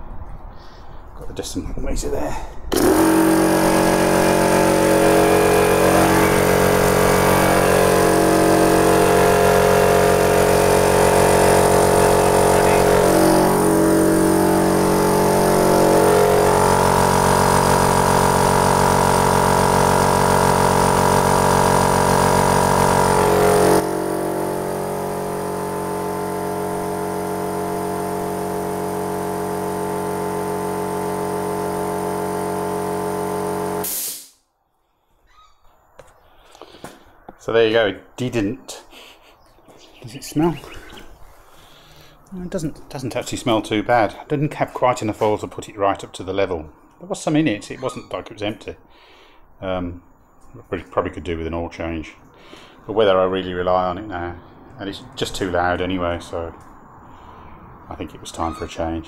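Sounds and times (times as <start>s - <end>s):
air compressor running: 2.7s - 34.4s, 40.8s - 42.3s.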